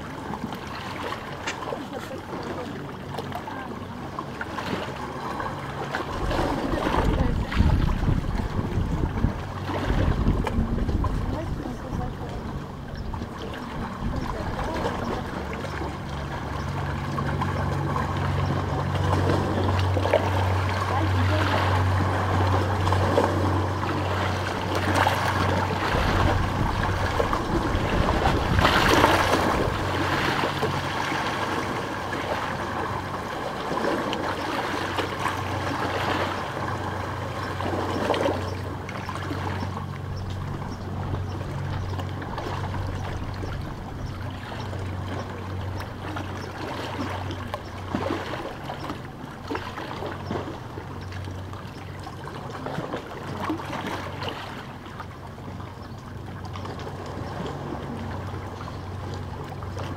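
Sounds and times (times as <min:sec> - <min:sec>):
small waves lapping on stones: 0:00.0 - 0:40.4
steady low hum: 0:00.0 - 0:59.9.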